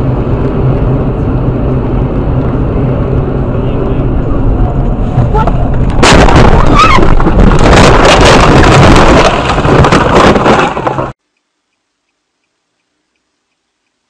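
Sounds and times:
car engine and road noise: 0.0s - 11.2s
loud car collision: 5.1s - 11.1s
crunching and clattering of wreck: 5.2s - 11.2s
windshield cracking: 5.4s - 11.2s.

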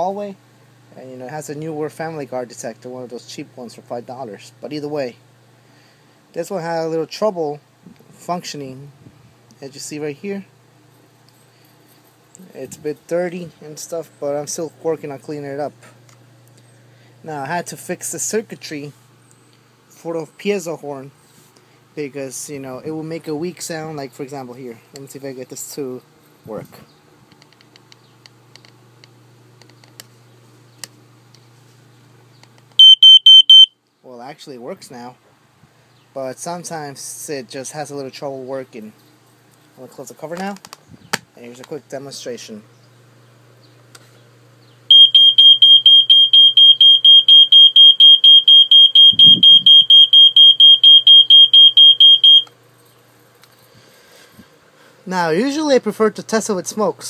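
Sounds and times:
low steady hum: 0.0s - 57.0s
smoke detector beep: 32.8s - 33.8s, 44.9s - 52.5s.

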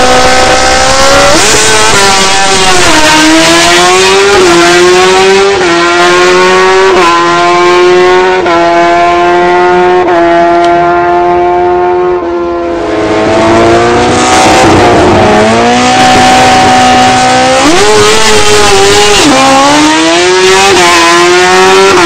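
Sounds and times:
motorcycle engine at full throttle: 0.0s - 22.0s
another engine revving: 12.8s - 22.0s.

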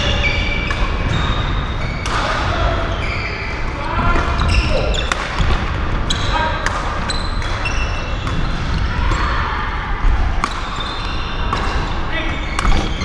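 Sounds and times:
shoes squeaking on floor: 2.8s - 9.2s, 10.6s - 11.6s, 12.2s - 13.0s
racket hitting shuttlecock: 4.1s - 5.7s.

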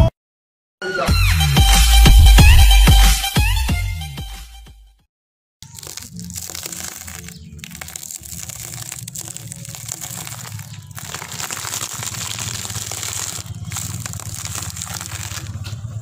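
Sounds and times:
plastic wrappers crinkling: 5.6s - 16.0s
tyre crushing wrapped candy: 5.6s - 16.0s.

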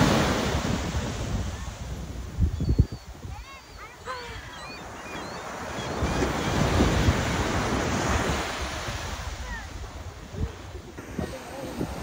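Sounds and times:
wave breaking on beach: 0.0s - 2.4s, 5.5s - 12.0s
wind buffeting microphone: 0.0s - 12.0s.

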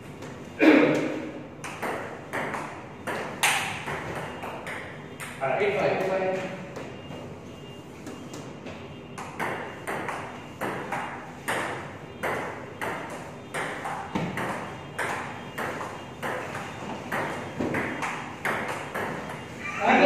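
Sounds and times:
table tennis ball hits: 0.2s - 5.9s, 9.2s - 19.6s.

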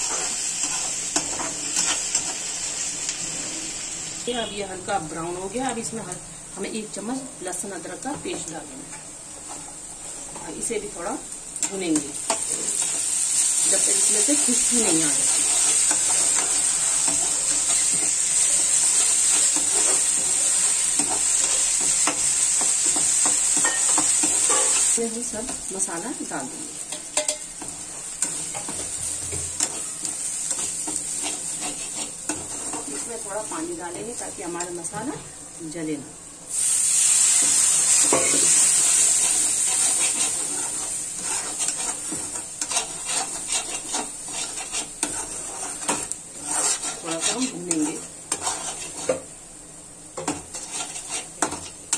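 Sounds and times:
spatula scraping a metal pan: 0.0s - 2.5s, 14.0s - 25.0s, 27.2s - 33.2s, 39.2s - 49.3s, 50.2s - 51.8s
onions sizzling in oil: 0.0s - 51.9s.

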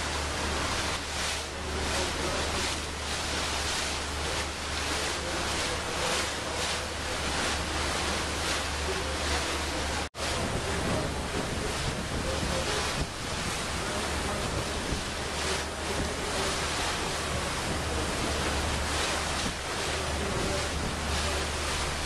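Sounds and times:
water rushing past hull: 0.0s - 22.0s
wind buffeting microphone: 10.0s - 22.0s.

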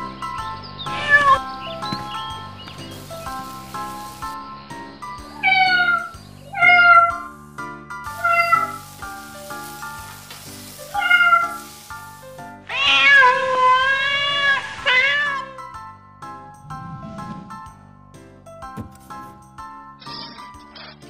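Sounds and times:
light background music: 0.0s - 21.0s
cat meowing: 0.9s - 1.4s, 5.4s - 7.3s, 8.2s - 8.8s, 10.9s - 11.7s, 12.7s - 15.6s.

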